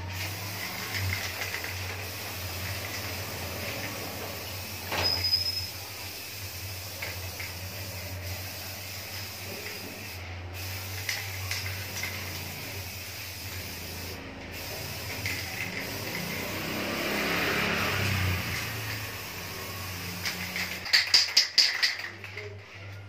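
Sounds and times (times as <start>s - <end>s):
aerosol spray can hissing: 0.1s - 22.2s.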